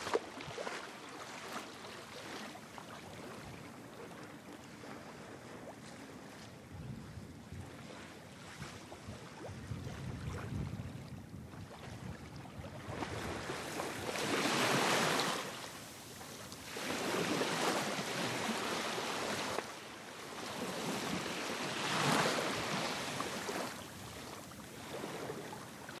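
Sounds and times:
sea waves washing on shore: 0.0s - 26.0s
wind: 0.0s - 26.0s.

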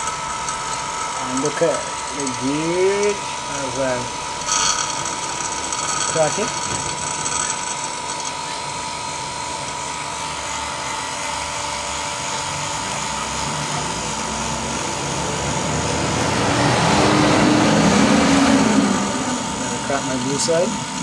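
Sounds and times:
vacuum pump running: 0.0s - 21.0s.

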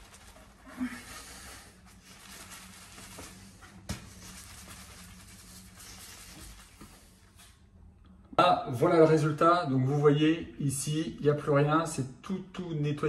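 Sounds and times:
plastic flask shaken with sloshing: 0.0s - 0.7s, 1.8s - 7.0s.

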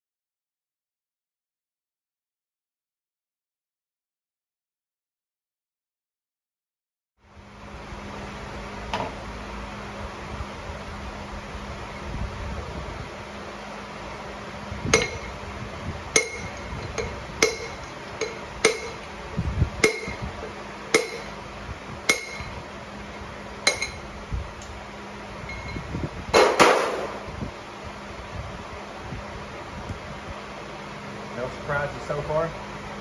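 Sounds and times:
metallic tapping on rod: 15.0s - 15.4s, 16.2s - 19.1s, 19.8s - 20.2s, 21.0s - 21.3s, 22.1s - 22.6s, 23.7s - 24.0s.

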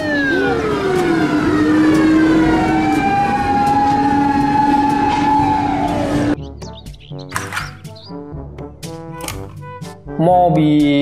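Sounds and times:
fire truck siren wailing: 0.0s - 6.4s.

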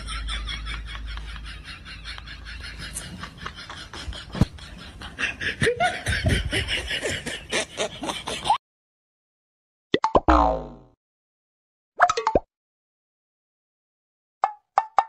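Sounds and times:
people laughing and snickering: 0.0s - 8.6s.

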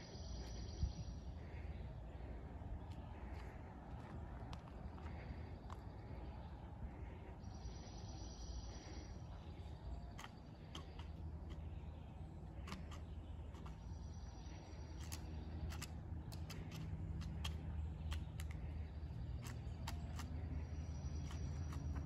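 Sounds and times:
woodpecker pecking wood: 9.8s - 22.0s.

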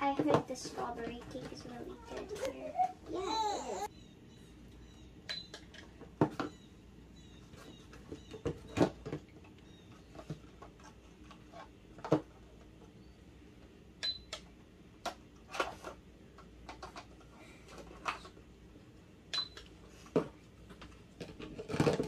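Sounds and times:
plastic toys clicking and knocking: 0.0s - 2.6s, 14.0s - 18.4s, 19.4s - 22.0s.

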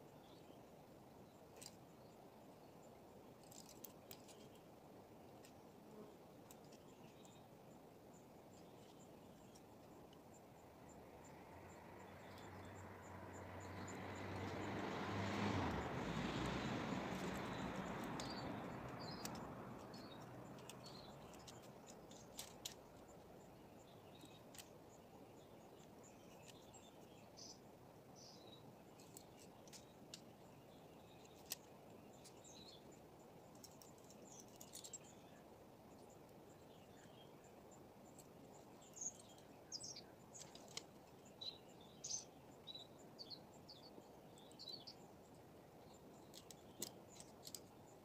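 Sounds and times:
bird chirps: 17.1s - 45.1s.

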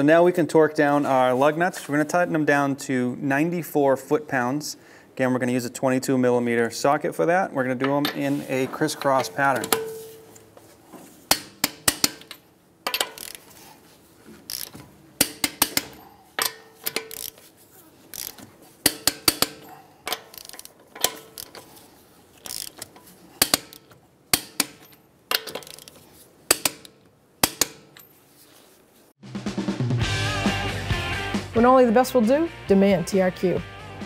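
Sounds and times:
torque wrench ratcheting clicks: 11.3s - 13.5s, 14.5s - 17.4s, 18.1s - 21.7s, 22.4s - 27.8s.

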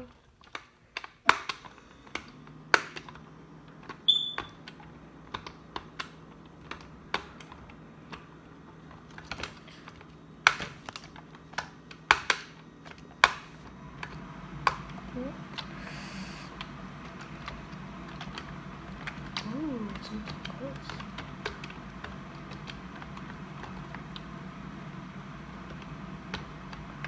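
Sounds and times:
high beep: 4.1s - 4.4s
plastic toy clicks and taps: 10.4s - 13.5s.

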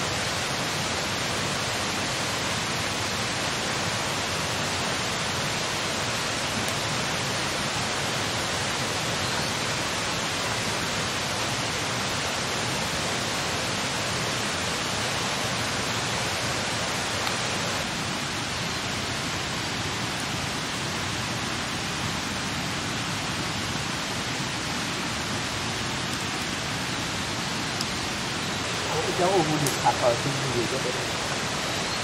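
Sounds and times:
steady rushing noise: 22.8s - 32.0s.

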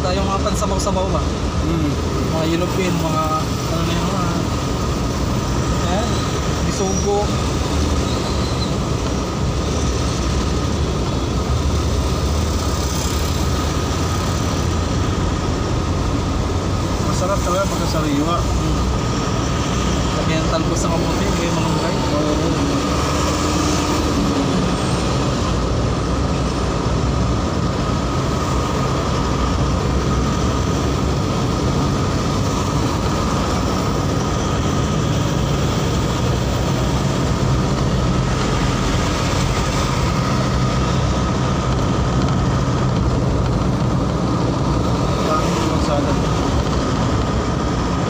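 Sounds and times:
wind and tyre noise: 0.0s - 48.0s
low engine hum: 21.1s - 48.0s.

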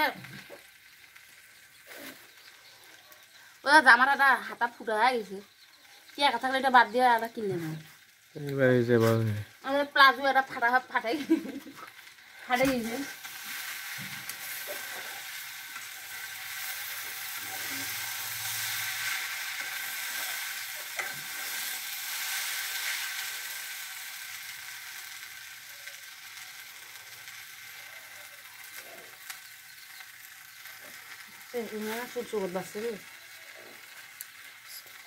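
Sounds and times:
greens sizzling in a wok: 0.0s - 35.0s
metal spatula scraping a pan: 12.4s - 23.0s.

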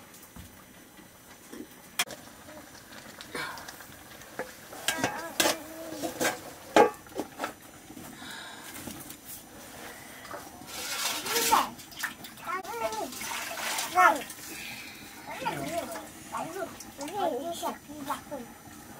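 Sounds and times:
small children's voices: 4.8s - 6.5s, 10.9s - 11.8s, 12.4s - 14.4s, 15.1s - 18.6s.

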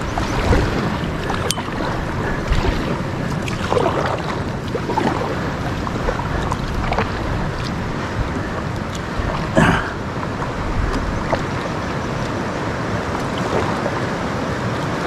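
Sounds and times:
whitewater rushing in river rapid: 0.0s - 15.0s.

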